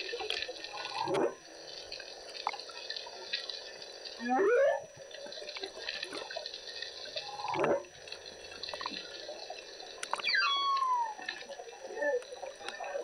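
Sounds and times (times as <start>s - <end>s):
crackle of the sea: 0.0s - 13.0s
humpback whale calls underwater: 4.2s - 5.0s, 7.2s - 7.9s, 10.1s - 13.0s.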